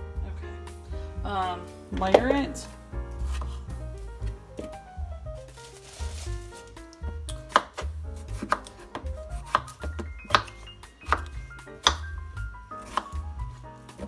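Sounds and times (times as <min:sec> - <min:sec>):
background music with rhythmic bass: 0:00.0 - 0:14.0
knife cutting on a cutting board: 0:03.3 - 0:03.6, 0:07.3 - 0:12.1, 0:12.8 - 0:14.0.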